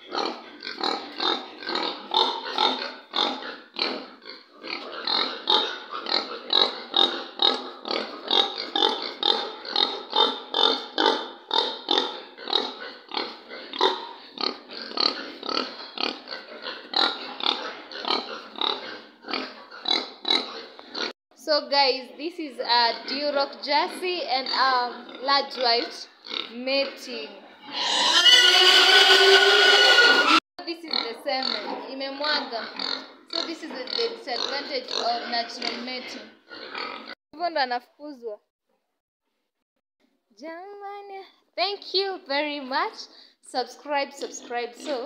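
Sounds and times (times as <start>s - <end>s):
pigs grunting: 0.0s - 21.2s, 22.6s - 37.2s.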